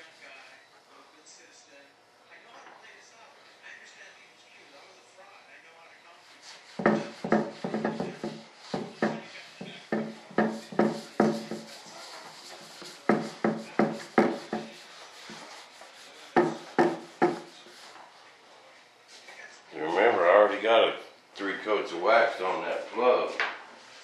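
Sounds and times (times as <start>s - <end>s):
hand rubbing waxed surface: 6.2s - 18.3s.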